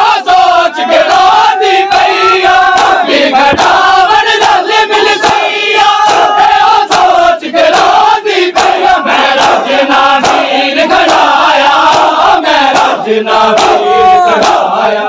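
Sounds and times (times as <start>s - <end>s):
crowd chanting in unison: 0.0s - 15.0s
hands slapping chests: 1.9s - 14.7s.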